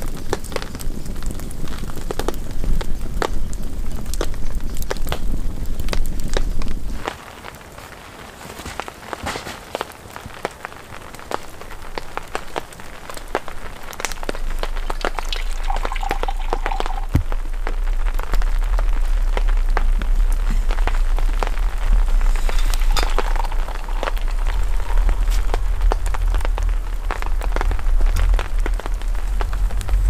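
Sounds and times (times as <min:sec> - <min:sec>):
heavy rain on plastic tarp: 0:00.0 - 0:30.0
deep rumble: 0:13.6 - 0:30.0.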